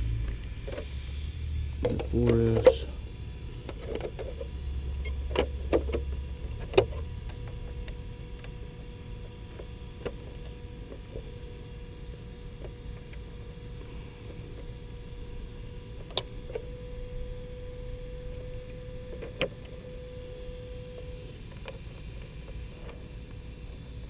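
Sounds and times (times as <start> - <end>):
faint steady tone: 0.0 - 24.0.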